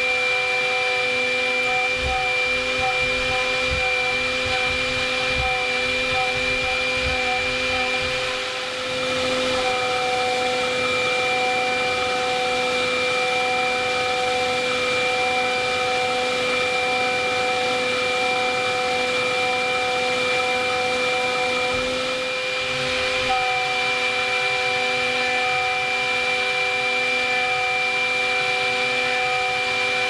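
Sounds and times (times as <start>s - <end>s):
milling spindle whine: 0.0s - 10.2s.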